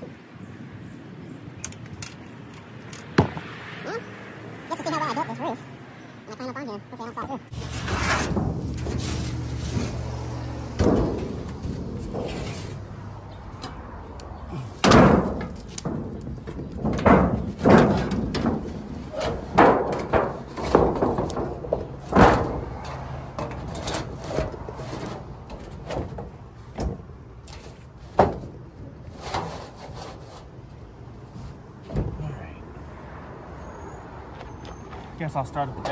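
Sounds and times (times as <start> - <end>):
tin roofing sheet banging: 7.5 - 12.8, 14.6 - 27.0.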